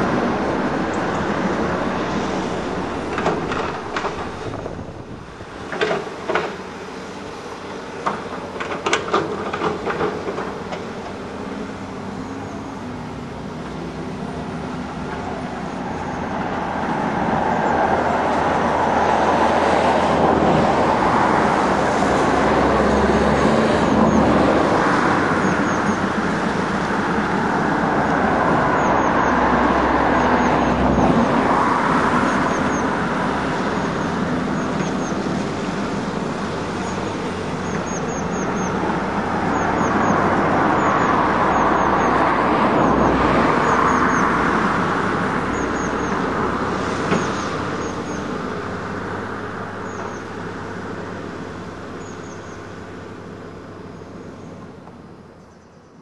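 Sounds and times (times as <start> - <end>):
excavator diesel engine under load: 0.0 - 55.4.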